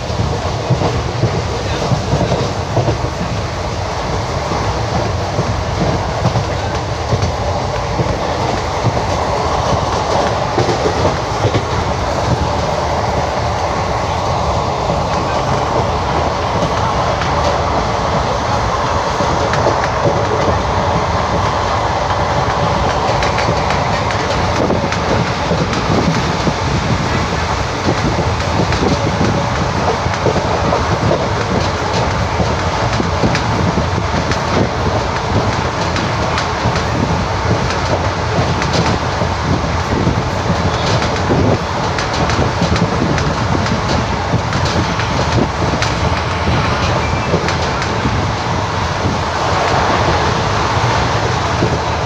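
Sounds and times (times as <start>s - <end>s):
train wheels rumbling on rails: 0.0s - 52.0s
clatter over rail joints: 14.8s - 52.0s.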